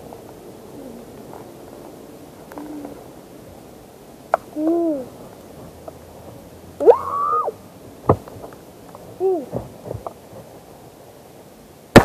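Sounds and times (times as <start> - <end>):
child hooting: 4.6 - 5.1, 6.8 - 7.6, 9.2 - 9.6.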